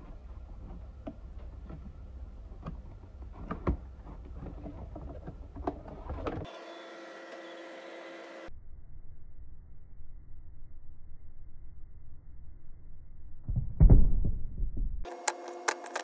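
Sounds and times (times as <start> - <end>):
packaging clicks and rustles: 15.1 - 16.0.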